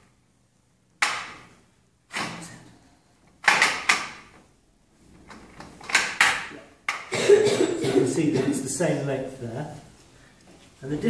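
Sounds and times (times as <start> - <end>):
soft handling noise: 9.4 - 11.0.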